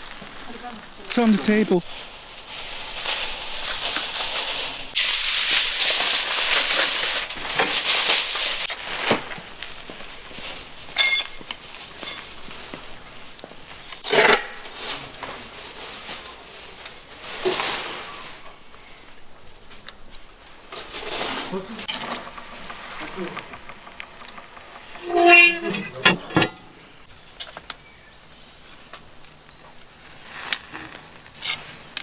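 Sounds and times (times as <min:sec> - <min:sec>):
aluminium foil crinkling: 0:00.0 - 0:25.4, 0:27.1 - 0:32.0.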